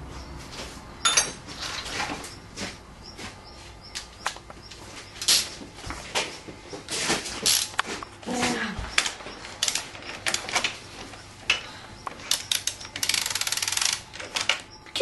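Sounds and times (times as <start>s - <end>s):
ratchet wrench clicking: 12.3s - 14.0s.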